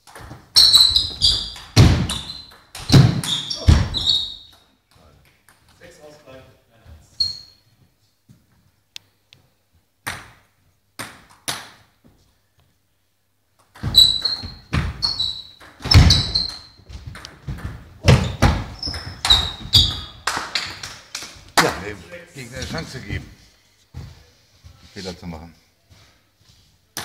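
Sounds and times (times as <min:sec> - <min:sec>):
table tennis ball bouncing: 0:13.6 - 0:20.9.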